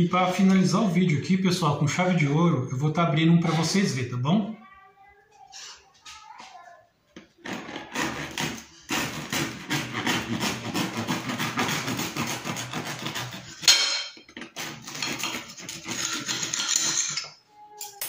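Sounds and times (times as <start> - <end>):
knife sawing through bread crust: 7.5 - 13.8, 14.4 - 16.8.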